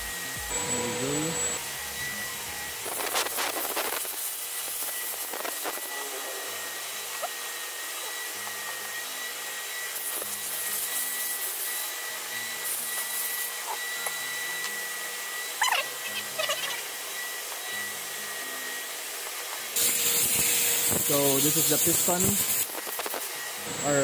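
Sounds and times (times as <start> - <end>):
thin high whine: 0.0 - 6.6.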